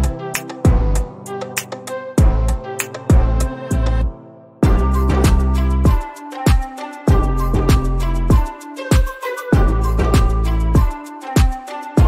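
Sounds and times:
bass drum hits: 4.6s - 5.5s.

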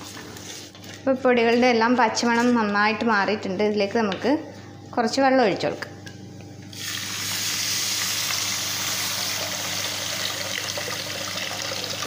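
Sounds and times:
water pouring into a pot: 7.8s - 12.0s.

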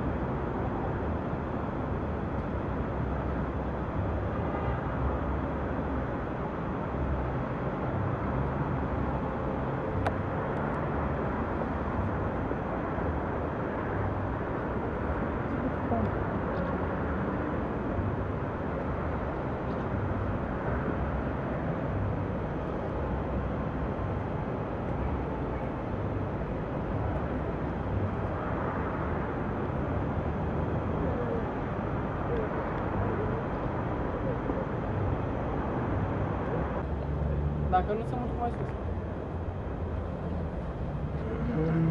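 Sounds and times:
distant traffic hum: 0.0s - 41.9s.

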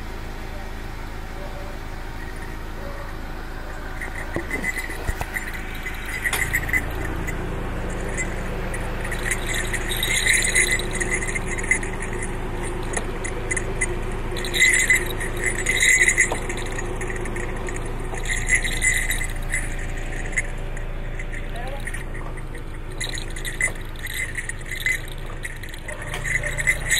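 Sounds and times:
low engine hum: 0.0s - 26.9s
small metal bells jingling: 1.4s - 26.9s.

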